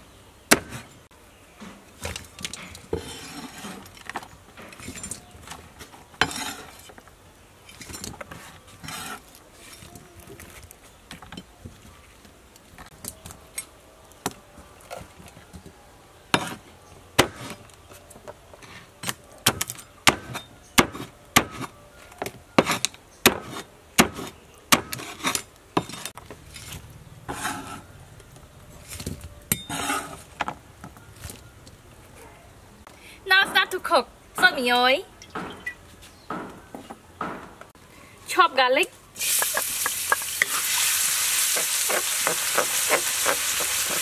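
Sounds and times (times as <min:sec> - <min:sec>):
cleaver chopping on wooden board: 0:22.6 - 0:25.1, 0:41.6 - 0:44.0.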